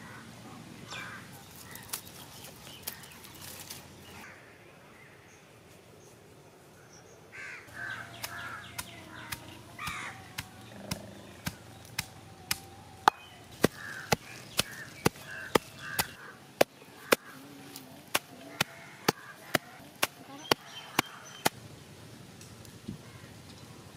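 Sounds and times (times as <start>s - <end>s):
crows cawing: 0.0s - 0.3s, 0.9s - 2.0s, 7.3s - 11.2s, 13.0s - 19.8s.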